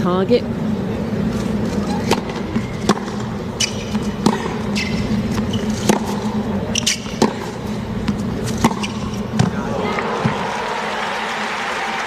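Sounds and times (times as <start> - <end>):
steady background hum: 0.0 - 12.0
shoe squeaks: 1.6 - 7.6, 8.4 - 9.3
ball bouncing on hard court: 2.0 - 10.4
tennis ball struck by rackets: 2.1 - 9.6.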